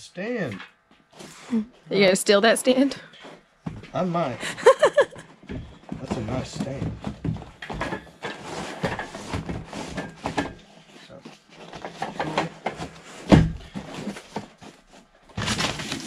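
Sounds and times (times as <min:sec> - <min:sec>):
cardboard scraping and rustling: 0:06.0 - 0:16.0.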